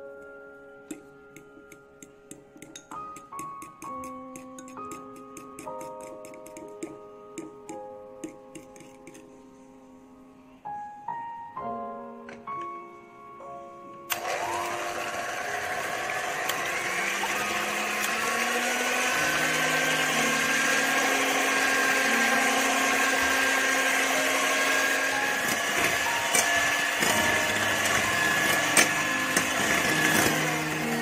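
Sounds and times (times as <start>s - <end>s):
electric hand mixer whine: 14.1s - 31.0s
mixer beaters clicking: 14.1s - 31.0s.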